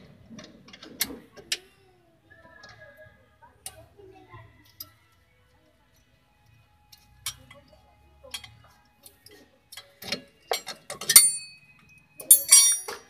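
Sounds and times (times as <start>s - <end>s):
wrench clicking on metal: 12.2s - 13.0s.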